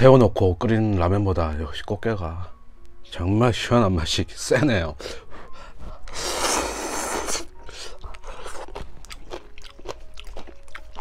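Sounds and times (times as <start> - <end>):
man chewing: 5.9 - 11.0
man slurping noodles: 6.1 - 7.9.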